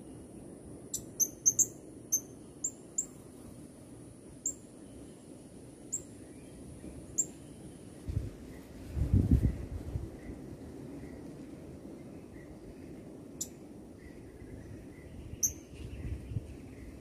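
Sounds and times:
parrot chirps: 0:00.9 - 0:03.1.

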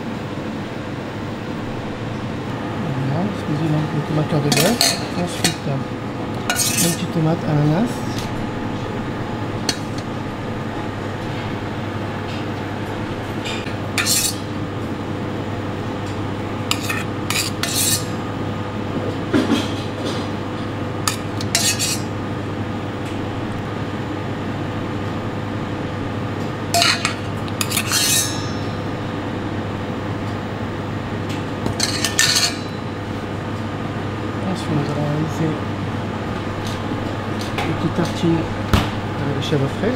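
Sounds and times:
steady background hum: 0:00.0 - 0:39.9
metal spoon scraping steel bowl: 0:06.5 - 0:07.1, 0:14.0 - 0:14.5, 0:16.7 - 0:18.2, 0:21.1 - 0:22.1, 0:26.8 - 0:28.7.

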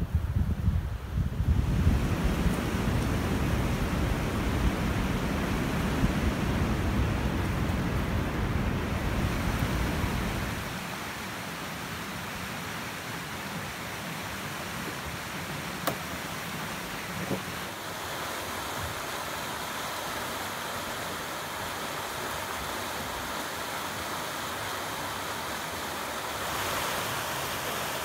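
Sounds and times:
wind buffeting microphone: 0:00.0 - 0:10.7
outdoor hiss: 0:00.0 - 0:28.0.

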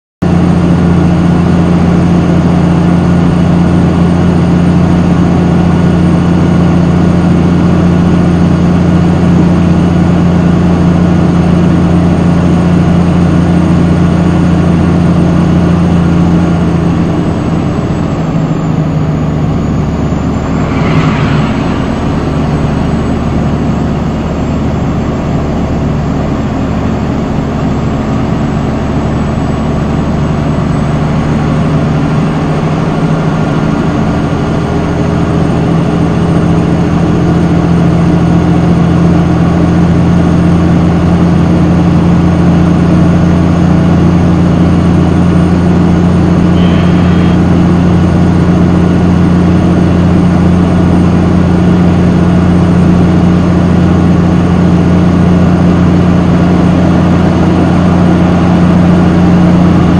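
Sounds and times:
diesel truck engine drone: 0:00.2 - 0:59.9
brief high-pitched noise: 0:20.1 - 0:24.2, 0:46.5 - 0:48.0.

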